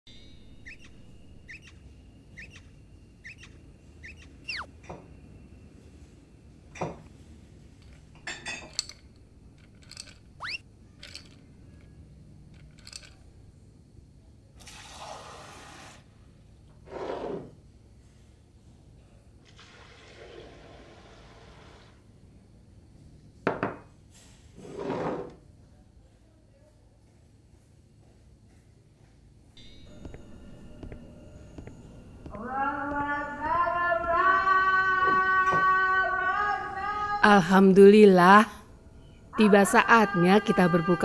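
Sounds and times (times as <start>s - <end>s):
short rising chirps: 0.1s - 4.8s, 10.4s - 10.6s
falling whistle-like tones: 4.1s - 4.7s, 10.4s - 10.6s.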